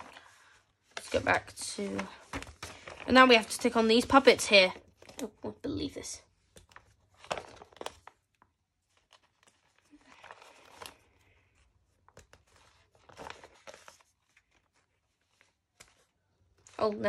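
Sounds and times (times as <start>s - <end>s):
paper sticker sheet crinkling: 6.5s - 17.0s.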